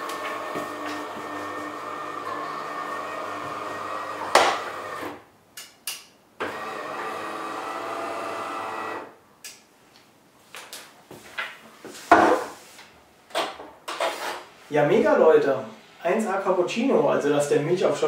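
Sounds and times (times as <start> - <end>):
coffee machine pump humming: 0.0 - 5.0
sharp click: 5.6 - 6.1.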